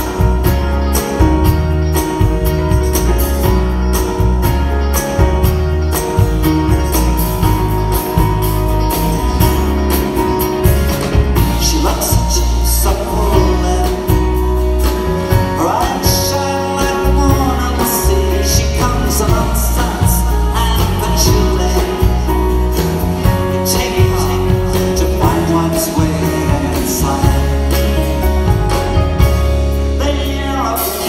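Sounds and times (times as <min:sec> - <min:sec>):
drum kit: 0:00.0 - 0:31.0
guitars: 0:00.0 - 0:31.0
keyboard: 0:00.0 - 0:31.0
person singing: 0:11.3 - 0:31.0.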